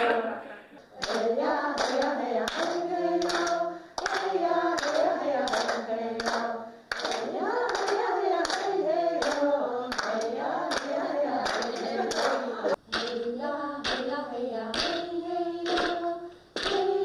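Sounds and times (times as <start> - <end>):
group singing: 0.0 - 17.0
hands clapping: 1.0 - 14.1, 14.7 - 16.9.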